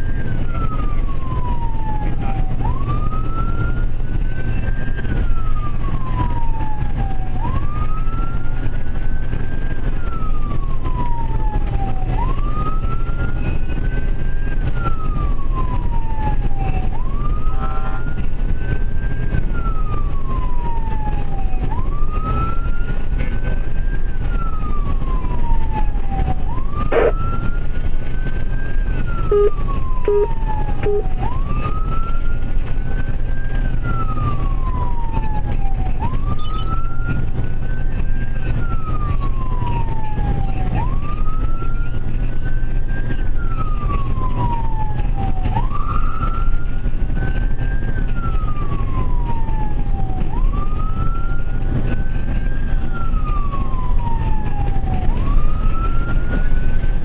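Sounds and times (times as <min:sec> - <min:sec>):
ambulance siren wailing: 0:00.0 - 0:57.0
road and engine rumble: 0:00.0 - 0:57.0
short low beeps: 0:29.3 - 0:31.0.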